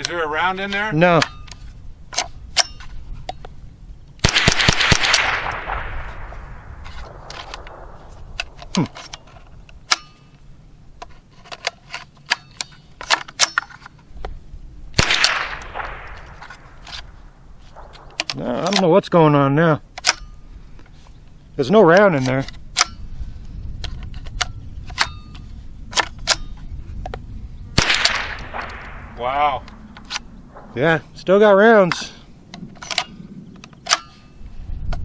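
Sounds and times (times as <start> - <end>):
rifle action clicks and rattles: 0.0 - 14.4, 15.0 - 19.0, 19.9 - 21.2, 21.9 - 27.2, 27.8 - 30.9, 31.9 - 35.0
rifle shots with echo: 4.2 - 10.1, 15.0 - 18.9, 27.8 - 31.2.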